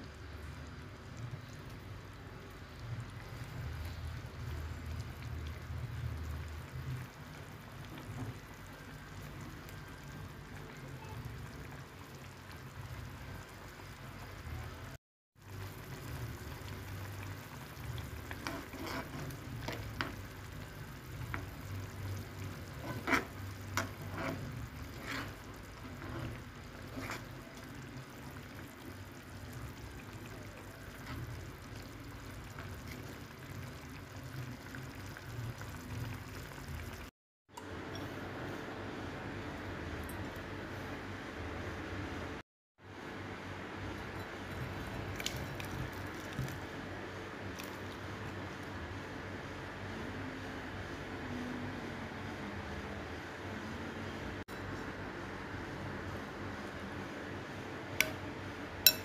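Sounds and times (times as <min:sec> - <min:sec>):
food sizzling in a pan: 0:15.4 - 0:37.1.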